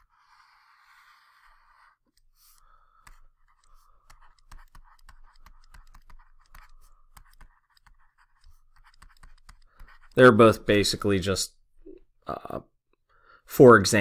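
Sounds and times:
stylus tapping and scratching tablet: 0.0 - 11.1.

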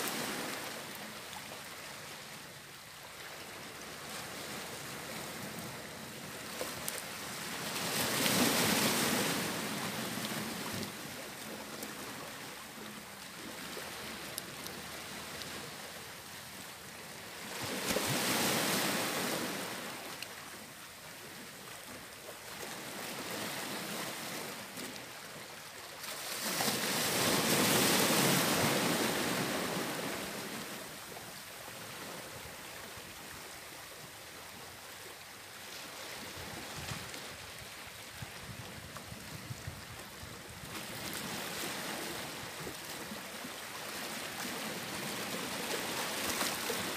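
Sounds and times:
surf washing onto rocky shore: 26.3 - 30.9.

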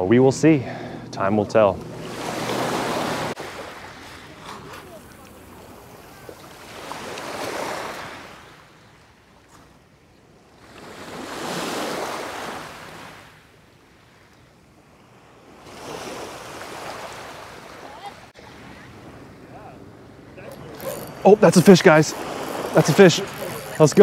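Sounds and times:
small waves on gravel beach: 2.0 - 9.8, 10.5 - 19.2, 20.5 - 24.0.

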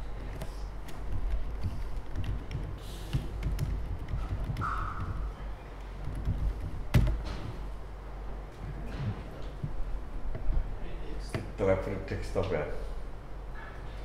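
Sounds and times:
laptop keyboard taps: 0.2 - 5.4, 6.0 - 7.5
sharp knock: 3.7 - 5.4.

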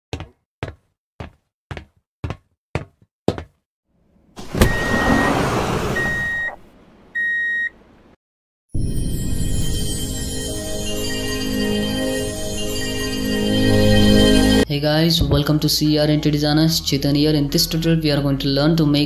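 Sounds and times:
sliding door hiss: 4.4 - 6.6
electronic beeps: 6.0 - 6.6.

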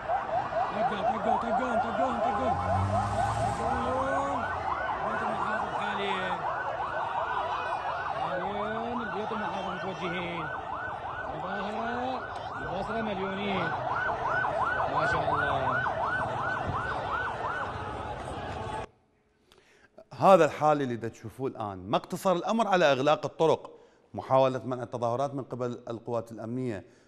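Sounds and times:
police siren yelping: 0.0 - 18.9
voices calling out: 0.0 - 18.9.

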